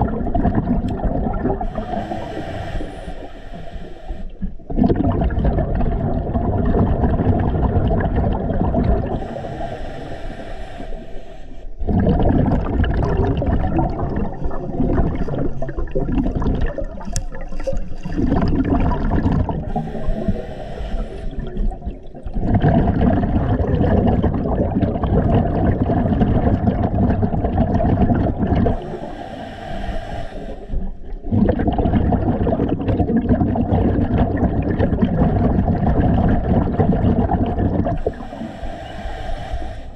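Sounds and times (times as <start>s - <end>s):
exhaled bubbles rushing: 0.0s - 3.2s, 4.4s - 9.9s, 11.8s - 29.4s, 30.7s - 39.0s
hissing regulator inhales: 1.6s - 4.6s, 9.1s - 11.8s, 19.7s - 21.6s, 28.7s - 31.0s, 38.0s - 39.9s.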